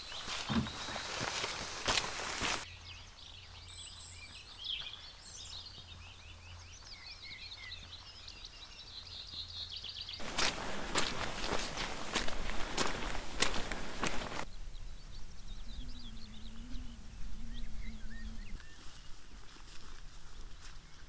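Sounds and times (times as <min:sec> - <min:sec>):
footsteps: 0:00.0 - 0:02.6, 0:10.2 - 0:14.5
small birds chirping: 0:00.0 - 0:19.5.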